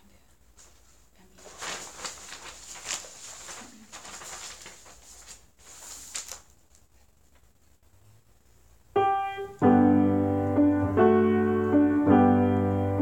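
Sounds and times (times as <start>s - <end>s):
paper pages rustling: 0.6s - 7.5s.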